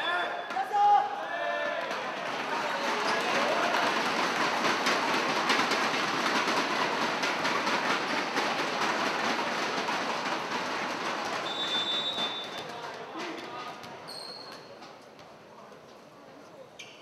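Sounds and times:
referee's whistle: 0:00.0 - 0:00.6, 0:11.4 - 0:12.6
crowd cheering and clapping: 0:00.0 - 0:13.0.

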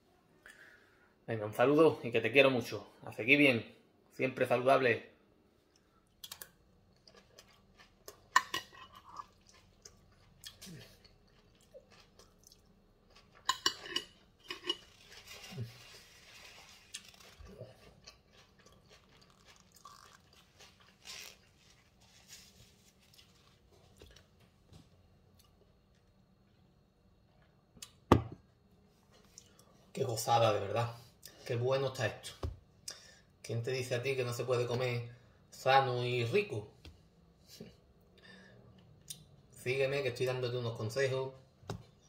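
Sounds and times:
person chewing salad: 0:05.7 - 0:24.4.

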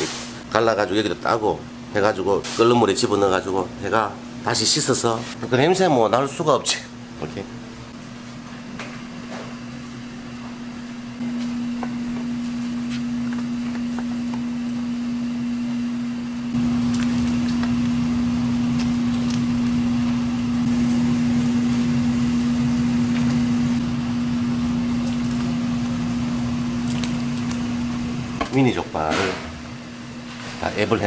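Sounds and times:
machine humming: 0:06.8 - 0:31.0.

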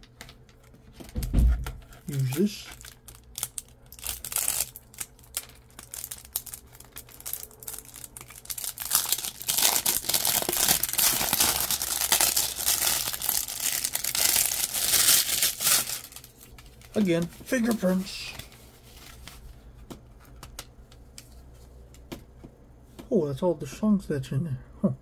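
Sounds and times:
plastic film crinkling and tearing: 0:01.8 - 0:19.5.

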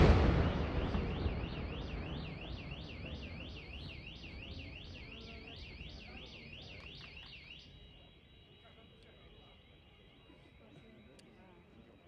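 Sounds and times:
low fireworks rumble: 0:00.0 - 0:07.2
car alarm warbling: 0:00.0 - 0:12.0.

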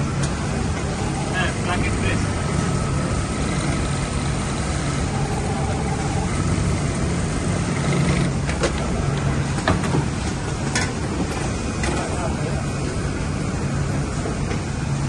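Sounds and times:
sewing machine humming: 0:00.0 - 0:09.4.

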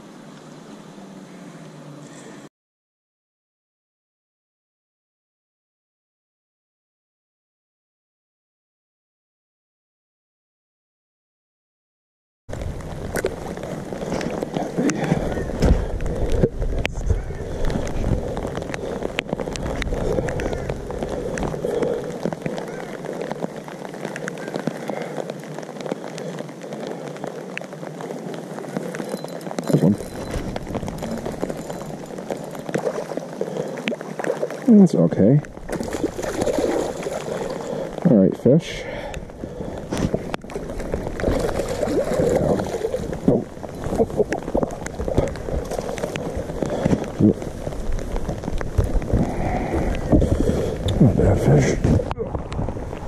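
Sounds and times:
light rain pattering: 0:00.0 - 0:02.5, 0:12.5 - 0:53.0
wind buffeting microphone: 0:12.5 - 0:22.7, 0:39.1 - 0:53.0
water splashing: 0:12.5 - 0:38.2, 0:39.0 - 0:53.0.

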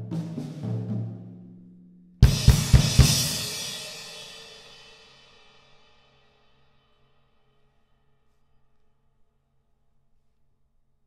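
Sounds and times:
accented drum and cymbal hits: 0:00.0 - 0:01.4, 0:02.2 - 0:06.0.

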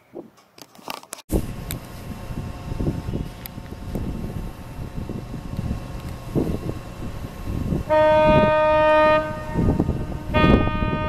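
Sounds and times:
wind rumbling on microphone: 0:01.3 - 0:11.0
ship's horn blast: 0:07.8 - 0:11.0.

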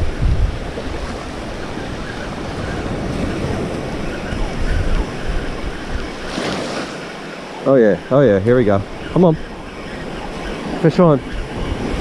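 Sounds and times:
surf washing onto beach: 0:00.0 - 0:09.3
wind buffeting microphone: 0:00.0 - 0:12.0.

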